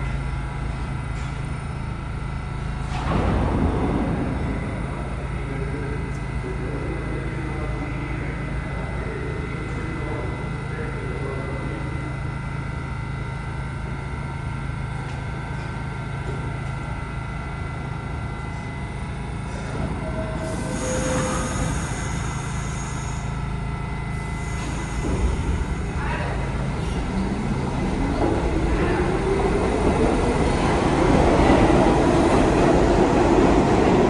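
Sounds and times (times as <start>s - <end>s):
subway train humming and whining: 0.0s - 34.0s
hiss with high squeal: 20.3s - 23.4s.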